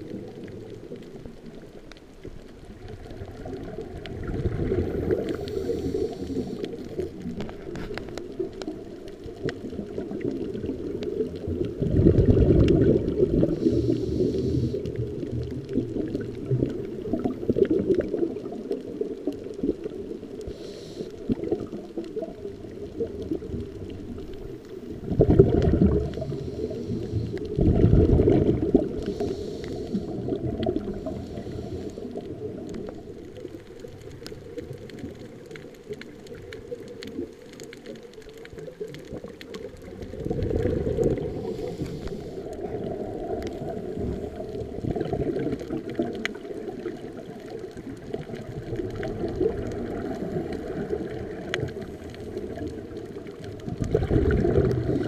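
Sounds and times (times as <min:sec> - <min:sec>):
air bubbles exhaled underwater: 0:00.0 - 0:55.0
faint clicks: 0:00.0 - 0:55.0
regulator inhale hiss: 0:04.9 - 0:07.2, 0:13.4 - 0:15.0, 0:20.4 - 0:21.6, 0:26.1 - 0:27.6, 0:28.9 - 0:32.5, 0:41.1 - 0:42.9.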